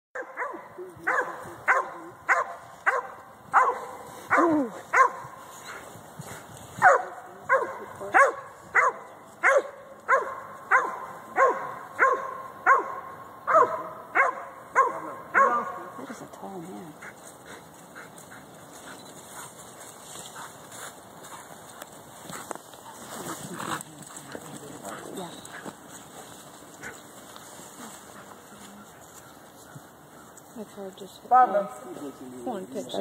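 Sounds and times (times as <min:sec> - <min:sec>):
dog barking: 0:00.2 - 0:05.4, 0:06.8 - 0:16.0.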